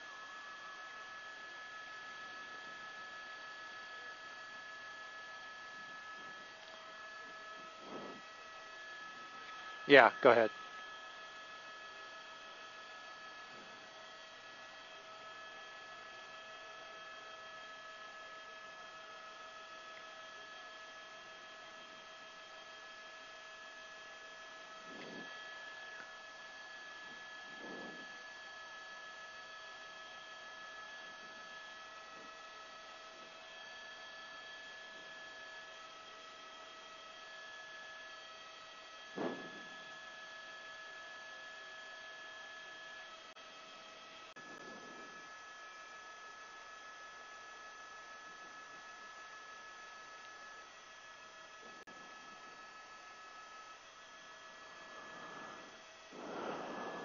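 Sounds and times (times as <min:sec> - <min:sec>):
steady electrical hum: 0:00.0 - 0:37.3, 0:37.9 - 0:41.0, 0:43.0 - 0:57.0
light hiss: 0:54.8 - 0:57.0
short blips: 0:55.1 - 0:57.0.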